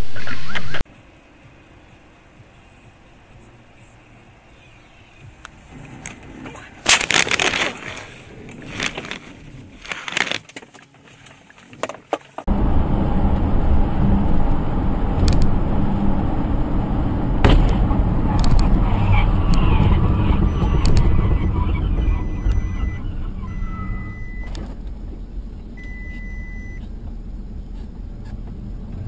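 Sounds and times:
car engine and road noise: 0.0s - 29.0s
car crash: 16.6s - 24.9s
bangs and clatter: 17.4s - 23.3s.

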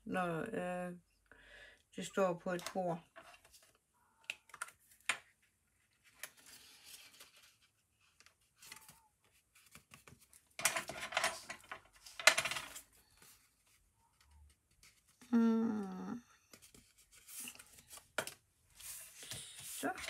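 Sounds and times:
paper rustling: 4.5s - 15.2s, 16.5s - 20.0s.

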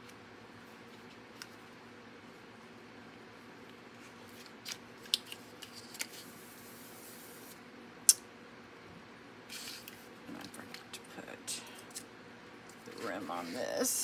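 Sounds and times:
soft rubbing hiss: 5.7s - 7.6s, 12.9s - 14.0s.

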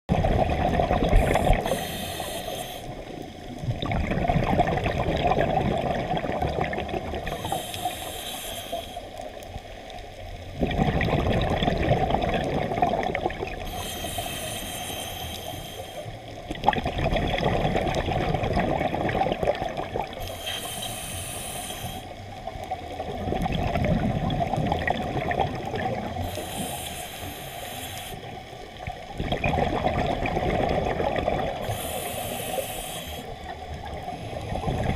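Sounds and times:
rumbling exhaled bubbles: 0.1s - 1.8s, 2.9s - 7.6s, 10.3s - 13.8s, 16.4s - 20.3s, 22.5s - 26.5s, 28.6s - 32.0s, 33.2s - 34.9s
hissing regulator inhale: 1.1s - 3.4s, 7.2s - 9.5s, 13.6s - 16.4s, 20.1s - 22.6s, 26.1s - 28.5s, 31.6s - 33.6s.

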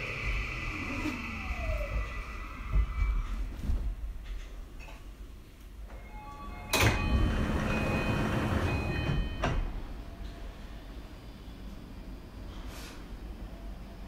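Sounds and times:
train doors sliding open: 5.8s - 10.4s
multi-tone chime: 6.0s - 9.8s.

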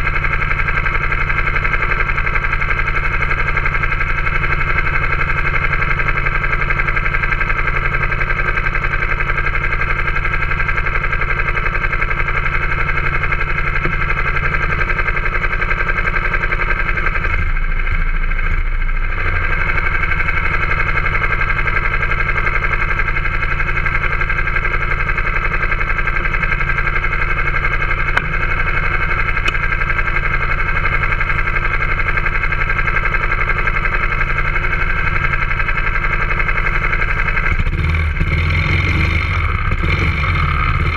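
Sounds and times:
go-kart engine idling: 0.0s - 40.9s.

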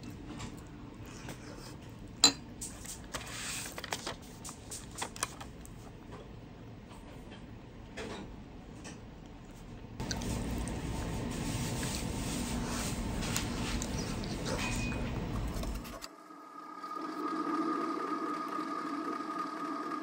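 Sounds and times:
soft eating noises: 0.0s - 8.0s, 8.7s - 16.0s
steady hum: 9.8s - 20.0s.

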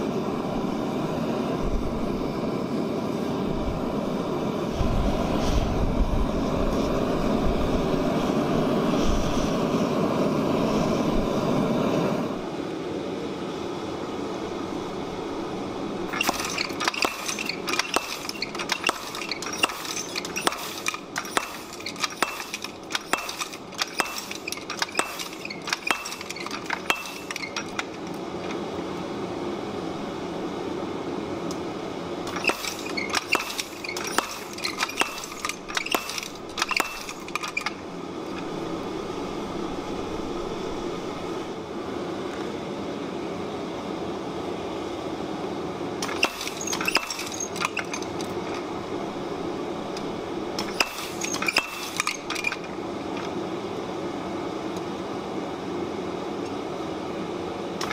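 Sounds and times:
hammer striking metal on anvil: 16.2s - 27.8s, 32.3s - 37.4s.

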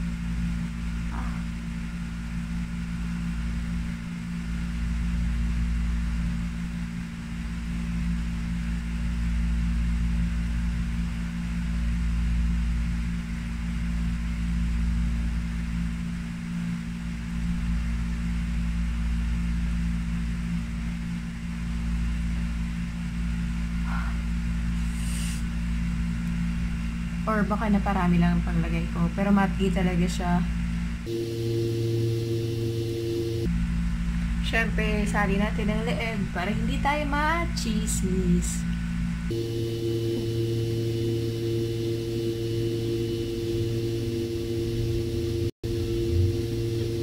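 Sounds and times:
even hiss: 23.9s - 25.6s
electric motor humming: 31.0s - 34.2s, 34.9s - 47.0s.

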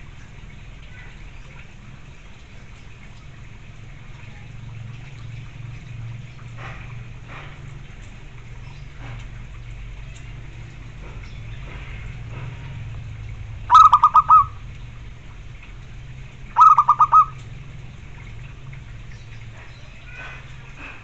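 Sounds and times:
dove cooing: 13.7s - 14.6s, 16.6s - 17.4s.

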